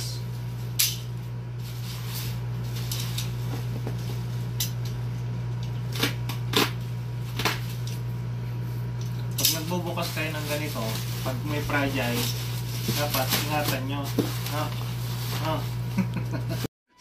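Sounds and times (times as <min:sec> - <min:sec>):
plastic wrapping tearing: 0:00.5 - 0:04.6, 0:09.4 - 0:15.9
plastic crinkling rips: 0:09.4 - 0:15.9.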